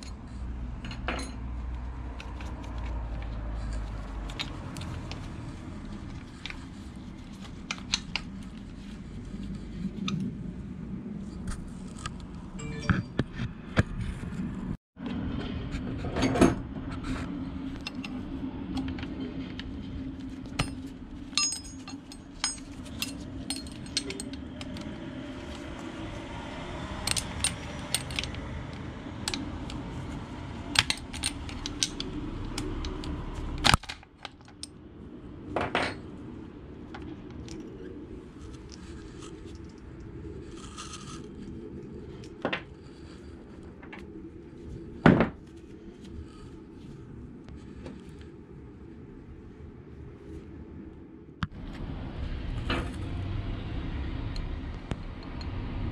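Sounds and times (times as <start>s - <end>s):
steady low hum: 0.0s - 55.9s
metal tools clinking: 20.6s - 24.8s, 27.1s - 28.4s.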